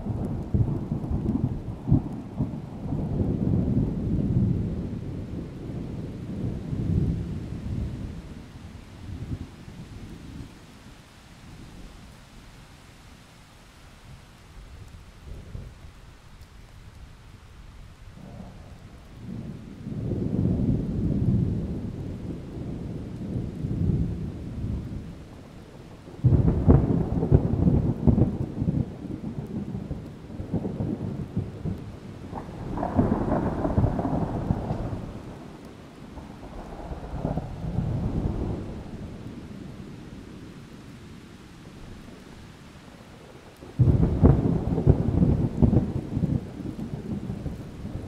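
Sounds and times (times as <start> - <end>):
distant thunder rumbling: 0.0 - 10.5, 18.2 - 40.8, 41.6 - 48.0
rain hissing: 0.0 - 48.0
thunder clap: 26.0 - 35.5, 43.8 - 48.0.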